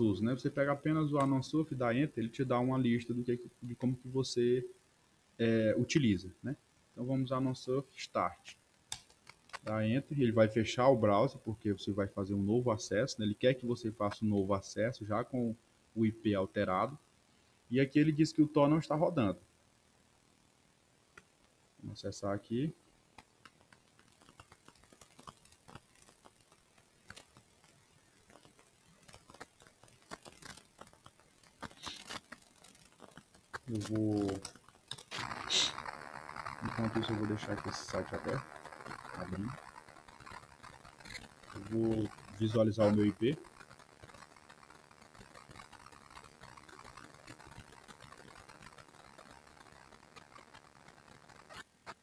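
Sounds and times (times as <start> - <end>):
small clicks and ticks: 0.0 - 1.6, 8.4 - 9.9, 21.1 - 22.0, 22.6 - 52.0.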